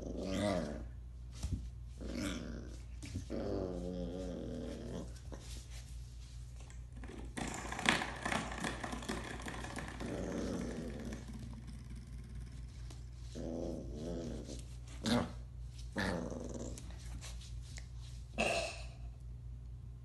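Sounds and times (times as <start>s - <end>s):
puppy growling: 0.0s - 1.0s, 2.0s - 5.5s, 7.0s - 17.0s.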